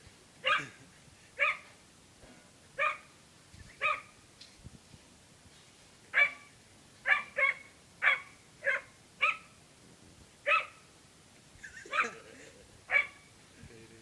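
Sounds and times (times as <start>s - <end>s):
dog barking: 0.4s - 0.8s, 1.4s - 1.7s, 2.8s - 3.1s, 3.8s - 4.1s, 6.2s - 9.5s, 10.5s - 10.8s, 11.9s - 12.2s, 12.9s - 13.2s.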